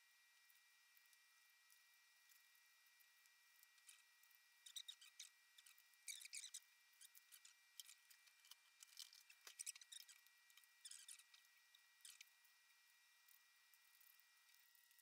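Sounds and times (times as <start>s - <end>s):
faint high-pitched hum: 0.0s - 15.0s
faint clicks and rustles: 3.2s - 12.5s.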